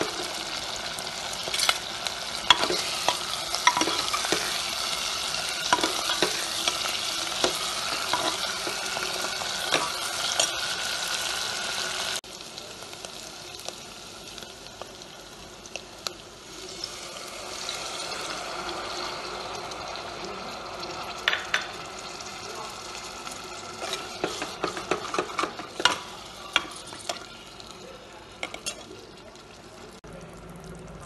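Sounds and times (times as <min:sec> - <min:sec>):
eggs sizzling in hot oil: 0:00.0 - 0:31.0
ladle scraping and clicking on pot: 0:02.5 - 0:04.7, 0:23.8 - 0:27.3.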